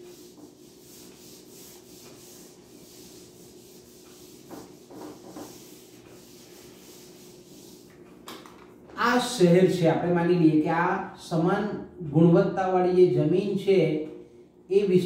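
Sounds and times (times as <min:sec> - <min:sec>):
duster rubbing on whiteboard: 0:00.0 - 0:08.2.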